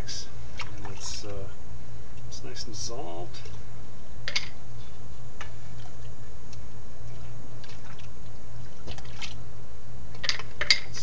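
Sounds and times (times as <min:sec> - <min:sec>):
steady low hum: 0:00.0 - 0:11.0
liquid splashing and dripping: 0:00.5 - 0:01.1, 0:05.7 - 0:09.4.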